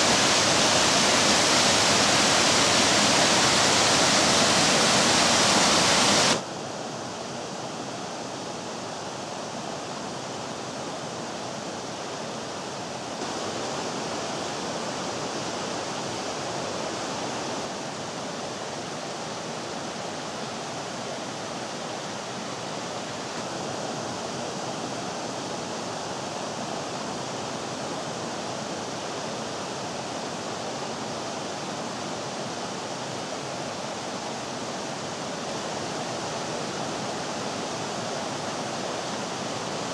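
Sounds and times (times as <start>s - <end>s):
waterfall rushing: 0.0s - 6.5s, 13.1s - 39.9s
flowing water: 0.0s - 7.1s, 11.1s - 39.9s.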